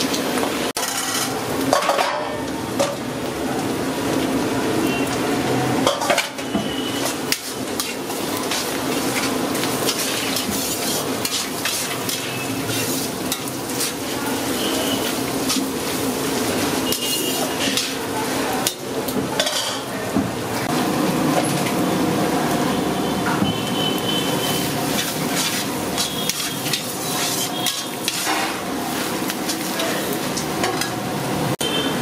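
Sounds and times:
vegetables sizzling in hot oil: 0.0 - 32.0
spatula scraping metal pan: 6.0 - 16.0, 24.3 - 28.6.

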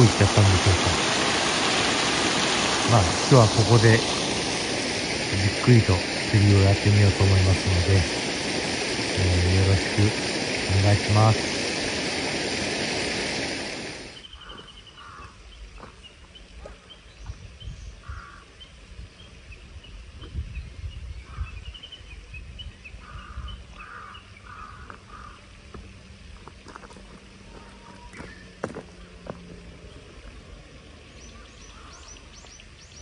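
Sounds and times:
loud rushing noise: 0.0 - 14.2
birds chirping: 0.0 - 26.0, 27.0 - 33.0.

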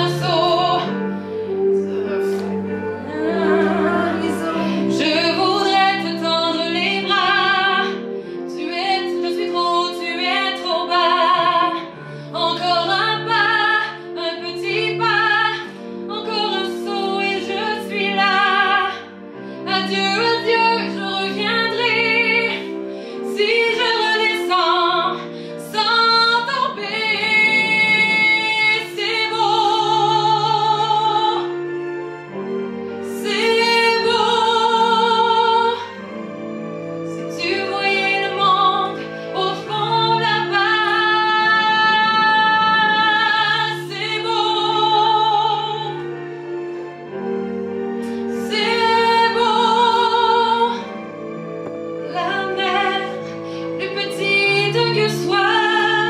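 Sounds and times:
woman singing with vibrato: 0.0 - 19.0, 19.7 - 32.0, 37.1 - 46.3, 52.0 - 56.0
low held accompaniment notes: 0.0 - 56.0.

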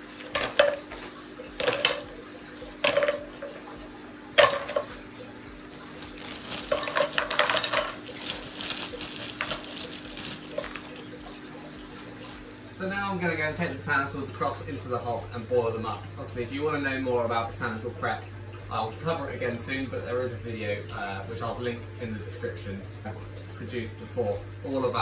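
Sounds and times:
small cones rattling against pan: 0.2 - 1.0, 1.6 - 2.1, 2.8 - 3.6, 4.4 - 5.0, 6.0 - 12.4
seed pods knocking in metal saucepan: 6.6 - 8.0.

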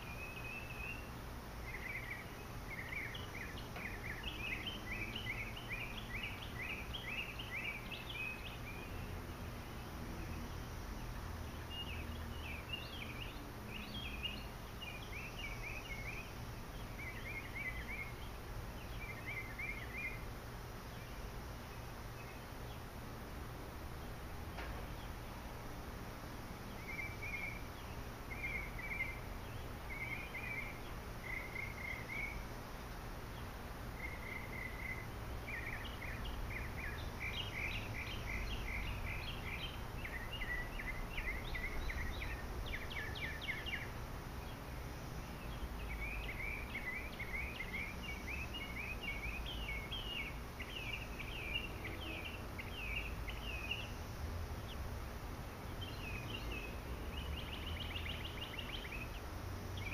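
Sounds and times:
songbird calling: 0.0 - 59.9.

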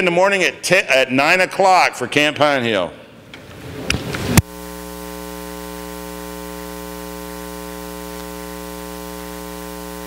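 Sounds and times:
electrical mains hum: 3.3 - 10.0
constant hiss: 3.8 - 10.0.

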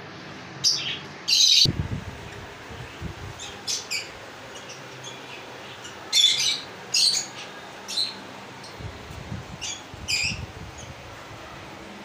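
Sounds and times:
lovebirds squawking: 2.9 - 8.8, 9.6 - 10.9.

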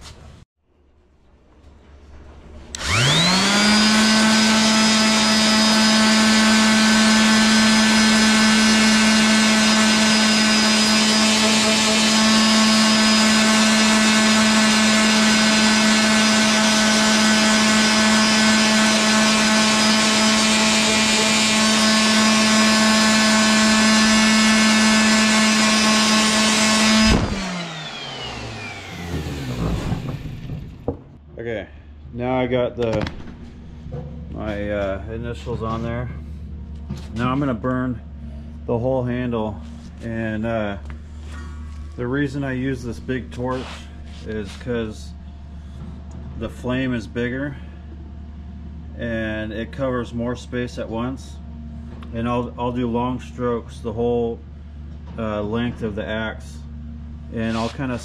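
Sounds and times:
orbital sander humming: 2.8 - 31.1.

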